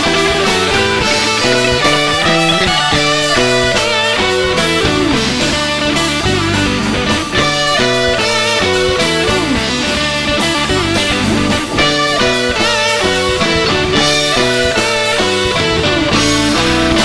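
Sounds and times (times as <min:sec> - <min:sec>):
bass guitar: 0:00.0 - 0:17.0
drum beat: 0:00.0 - 0:17.0
electric guitar with bent notes: 0:00.0 - 0:17.0.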